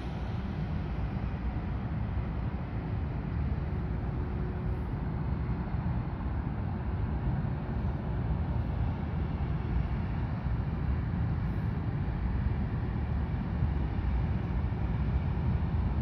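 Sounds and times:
ferry engines low rumble: 0.0 - 16.0.

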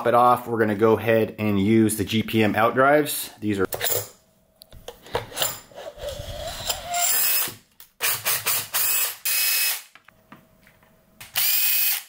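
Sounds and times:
power drill running: 6.0 - 9.9, 11.4 - 12.0.

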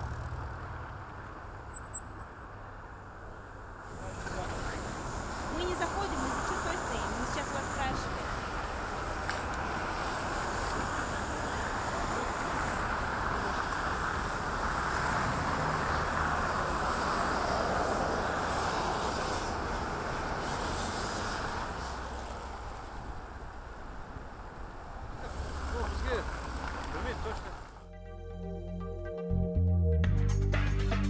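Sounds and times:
city traffic noise: 0.0 - 28.5.

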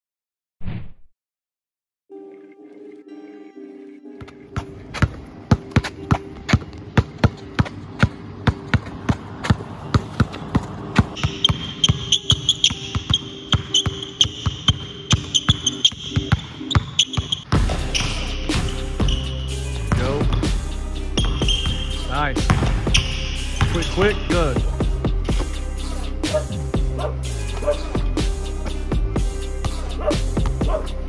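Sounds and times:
basketball bouncing on asphalt: 4.2 - 17.9, 22.5 - 23.0
basketball bouncing on hardwood floor: 4.2 - 18.1, 22.5 - 23.8.

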